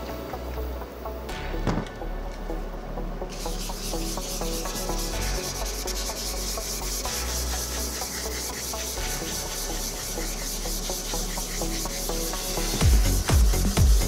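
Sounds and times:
sandpaper scrubbing plastic: 3.4 - 14.0.

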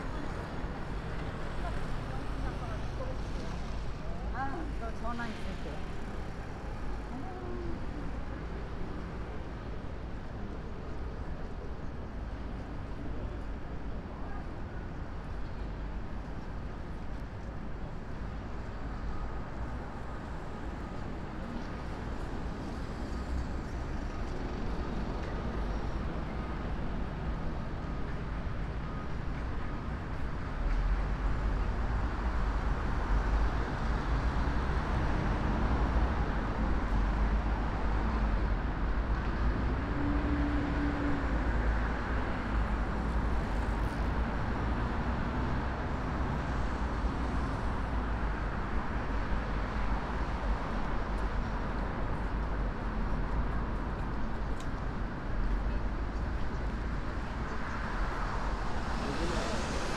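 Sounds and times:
deep traffic rumble: 0.0 - 59.9
passing cars hum: 30.8 - 59.9.

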